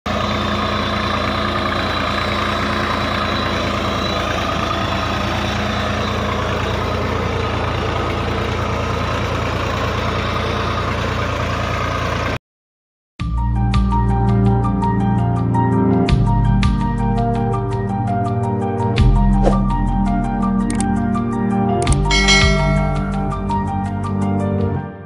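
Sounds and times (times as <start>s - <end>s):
tractor diesel engine under load: 0.1s - 12.4s.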